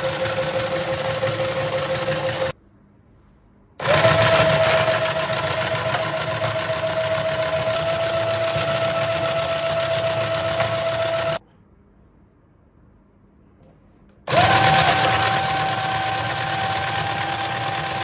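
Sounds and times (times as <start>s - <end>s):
small motor whining: 14.3s - 18.0s.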